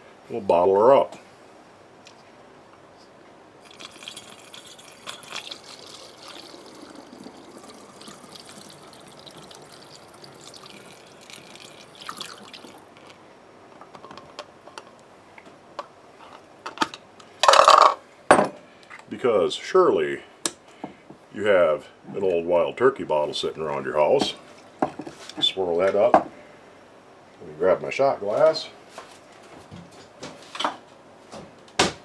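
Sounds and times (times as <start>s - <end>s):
liquid pouring into glass bottle: 3.6s - 13.2s.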